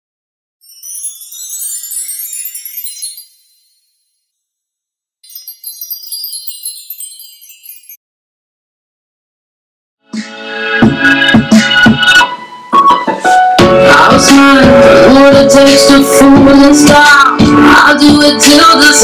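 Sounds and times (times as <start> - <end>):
high tinkling chimes: 0.6 - 8.0.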